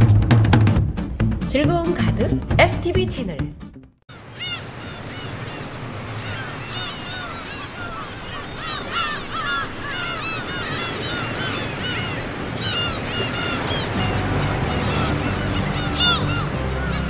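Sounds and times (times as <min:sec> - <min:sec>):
birds calling: 0:04.1 - 0:17.0
surf breaking: 0:04.2 - 0:17.0.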